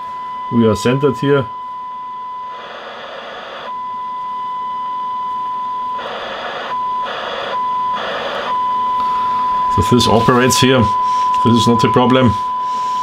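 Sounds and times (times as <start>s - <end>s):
steady tone whistle: 0.0s - 13.0s
receiver hiss bursts: 2.5s - 3.8s, 6.0s - 13.0s.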